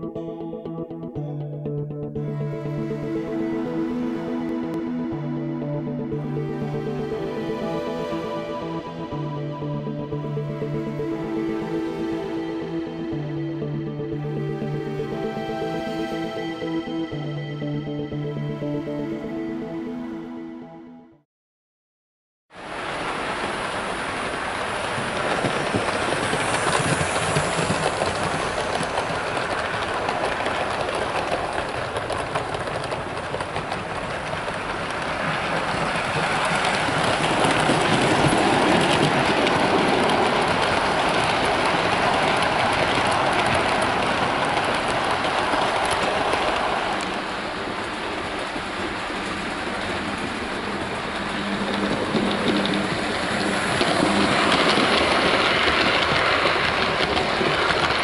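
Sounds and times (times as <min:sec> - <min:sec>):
model train running on track: 0:22.6 - 0:58.0.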